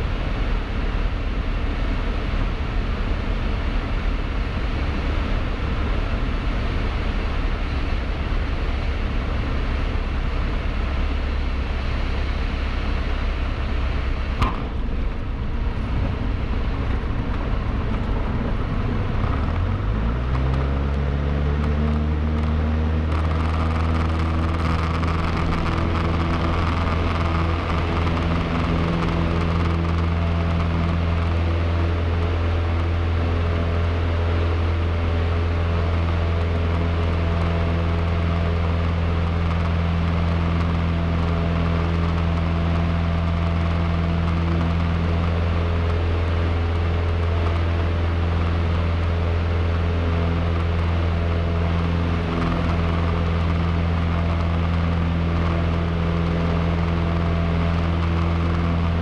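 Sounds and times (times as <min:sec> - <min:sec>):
light aircraft engine revving: 0:00.0 - 0:59.0
sharp click: 0:14.4 - 0:14.8.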